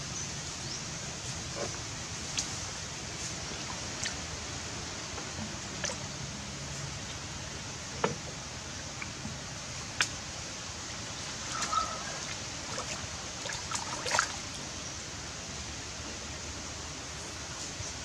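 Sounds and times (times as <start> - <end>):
creek water hissing: 0.0 - 18.0
small splashy ticks: 2.2 - 2.6, 3.6 - 4.3, 5.1 - 6.1, 8.9 - 10.2, 11.1 - 14.5.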